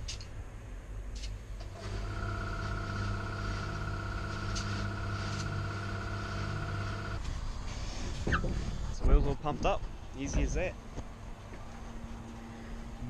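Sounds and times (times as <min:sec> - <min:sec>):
compressor humming: 0:01.6 - 0:07.3.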